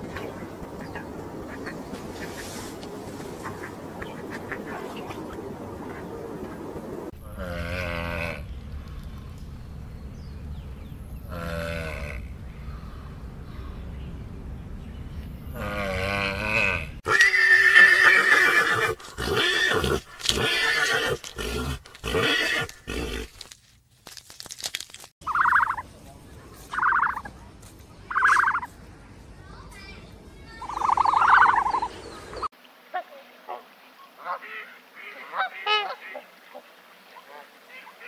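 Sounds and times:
horse whinnying and neighing: 15.6 - 23.3
goose honking: 25.3 - 25.8, 26.7 - 27.3.

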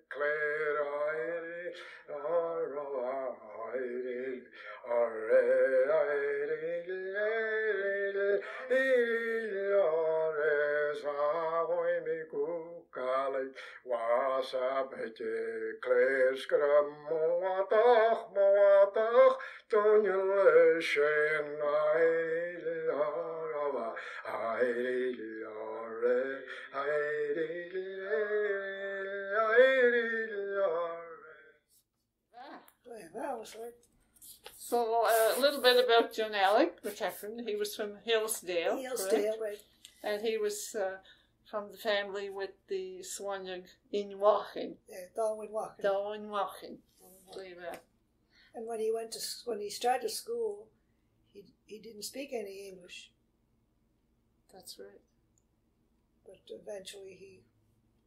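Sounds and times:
breaths: 1.8 - 2.1, 4.5 - 4.8, 13.6 - 13.9, 19.4 - 19.7, 24.0 - 24.3, 26.4 - 26.8, 41.0 - 41.5, 48.2 - 48.6
person singing unaccompanied: 38.3 - 41.0.

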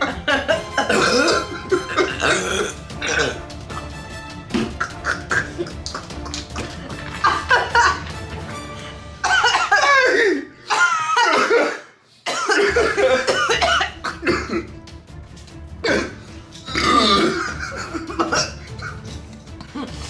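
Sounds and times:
people laughing: 0.0 - 2.1, 4.8 - 8.2, 12.6 - 13.7, 17.2 - 20.0
people coughing: 0.0 - 8.1, 9.2 - 14.8, 15.8 - 20.0
background music: 0.0 - 20.0.

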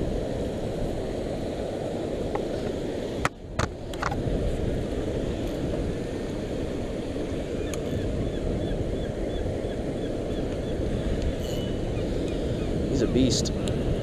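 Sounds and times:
wind on microphone: 0.0 - 14.0
fishing reel squeaking: 11.4 - 12.4.

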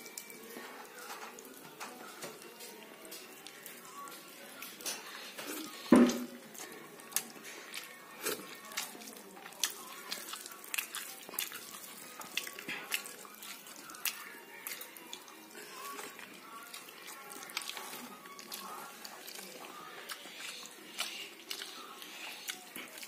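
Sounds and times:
fingers squelching wet rice: 7.0 - 15.3, 20.0 - 23.0.

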